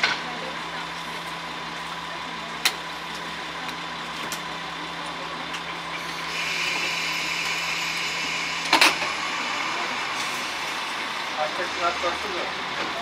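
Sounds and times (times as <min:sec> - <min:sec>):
diesel railcar engine: 0:00.0 - 0:13.0
train hiss: 0:06.0 - 0:12.9.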